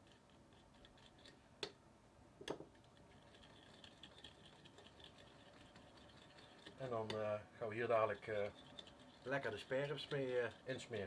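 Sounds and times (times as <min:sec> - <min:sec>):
utensil stirring thick sauce: 0:00.0 - 0:01.4, 0:02.7 - 0:11.0.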